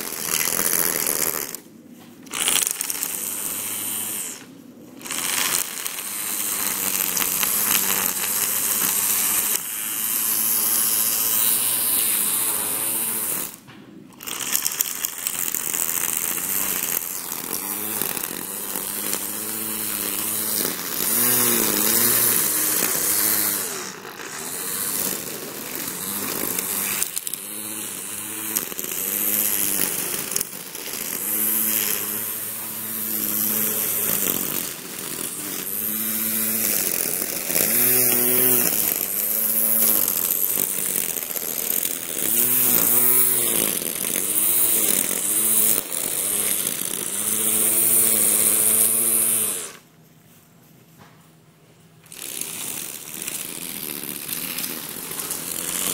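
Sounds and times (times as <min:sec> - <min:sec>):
trimmer line hissing through grass: 0:00.0 - 0:13.6, 0:14.2 - 0:49.9, 0:52.0 - 0:55.9
string trimmer motor whine: 0:00.0 - 0:49.9, 0:52.0 - 0:55.9.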